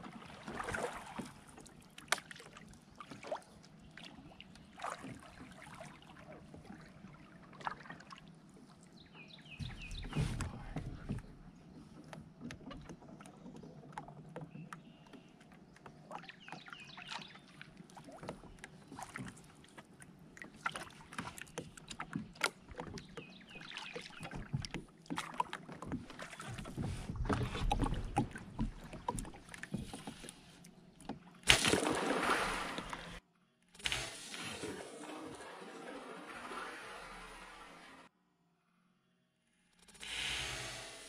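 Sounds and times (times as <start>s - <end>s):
paddle dipping and dripping in water: 0.0s - 38.1s
paddle knocking on plastic hull: 9.6s - 11.4s, 24.0s - 30.2s.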